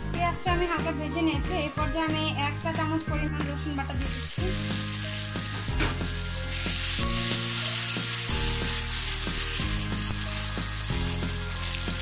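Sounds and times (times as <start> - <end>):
soft background music: 0.0 - 12.0
onions sizzling in hot oil: 4.0 - 12.0.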